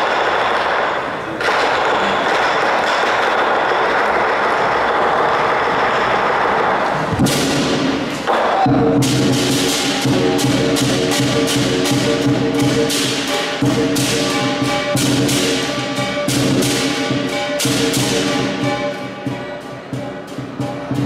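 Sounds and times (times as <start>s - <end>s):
sharp strikes: 7.1s - 21.0s
cymbals clashing: 7.2s - 21.0s
lion drum: 8.6s - 21.0s.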